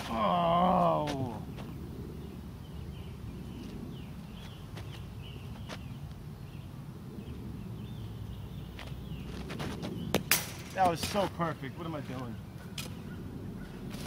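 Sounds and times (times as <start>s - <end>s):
bird chirps: 11.4s - 14.0s.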